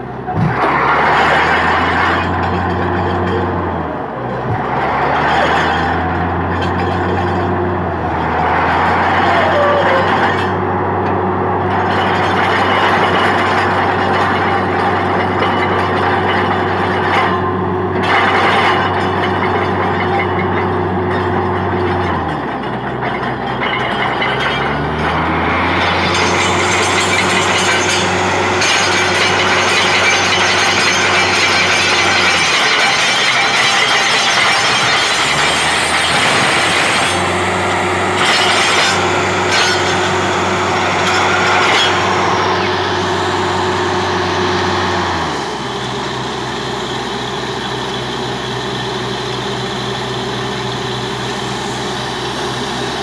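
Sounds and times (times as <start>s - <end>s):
drilling rig running: 0.0s - 53.0s
low hum: 23.6s - 46.1s.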